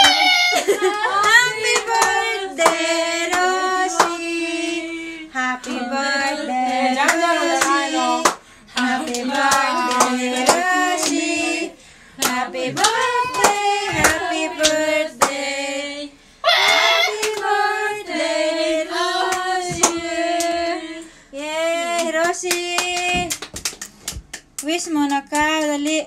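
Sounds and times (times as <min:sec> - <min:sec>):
children and women singing: 0:00.0 - 0:23.5
hands clapping in time: 0:12.2 - 0:15.4, 0:22.0 - 0:26.0.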